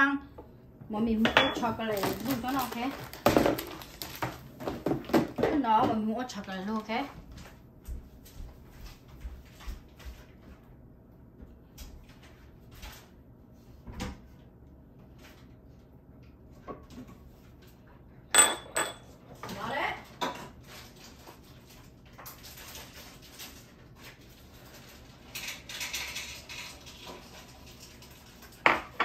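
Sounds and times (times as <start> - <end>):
utensils and dishes clinking: 1.2 - 4.1, 18.3 - 20.6, 25.2 - 29.0.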